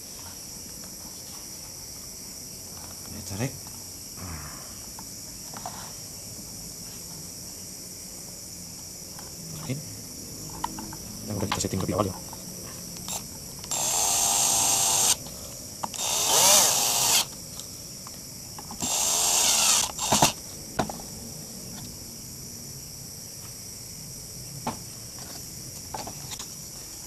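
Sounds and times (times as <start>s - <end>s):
crickets chirping: 0.0s - 27.0s
cordless drill running: 13.1s - 15.2s, 15.9s - 17.3s, 18.8s - 20.4s.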